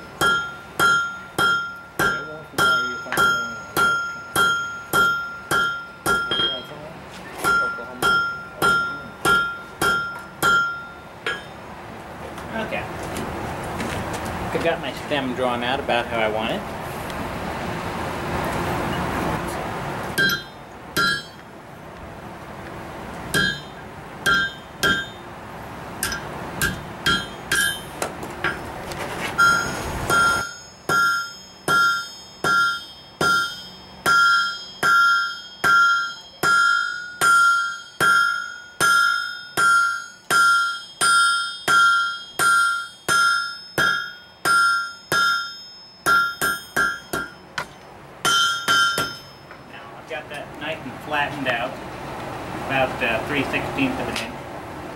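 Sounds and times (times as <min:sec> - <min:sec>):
hammer ringing on anvil: 0:00.0 - 0:11.6, 0:20.2 - 0:21.4, 0:23.3 - 0:25.2, 0:26.0 - 0:28.7, 0:29.4 - 0:49.7.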